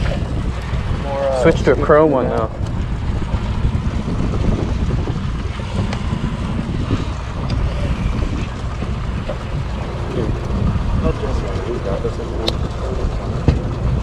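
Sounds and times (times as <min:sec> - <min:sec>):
water washing around boat: 0:00.0 - 0:14.0
wind buffeting microphone: 0:00.0 - 0:14.0.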